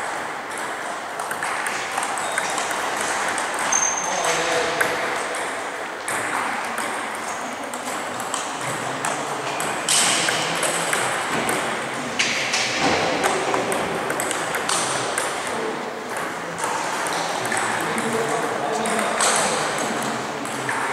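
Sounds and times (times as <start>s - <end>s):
table tennis ball clicking: 13.2s - 15.5s.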